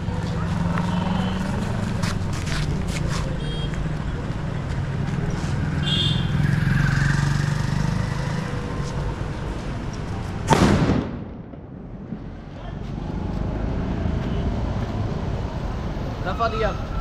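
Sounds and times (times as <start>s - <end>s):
street traffic hum: 0.0s - 17.0s
firecracker bang: 10.5s - 12.3s.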